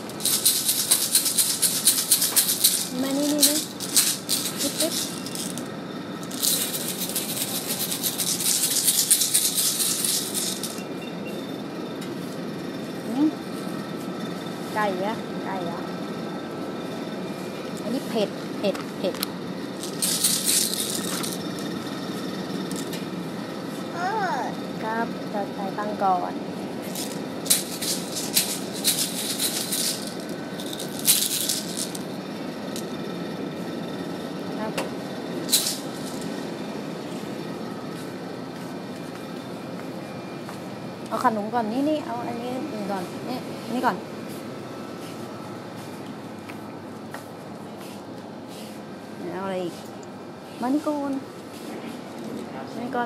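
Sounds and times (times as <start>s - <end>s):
toy rattle shaken quickly: 0.0s - 10.9s, 19.8s - 21.8s, 22.7s - 22.9s, 26.8s - 32.1s, 35.4s - 36.4s.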